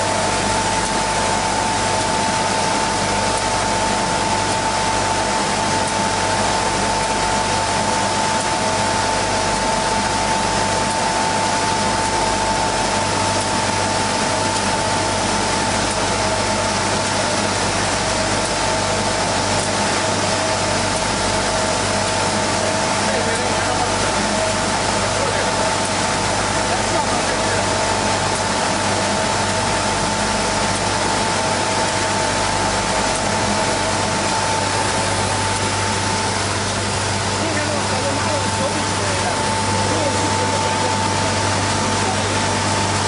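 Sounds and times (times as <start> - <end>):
sanding machine running: 31.0 - 43.0.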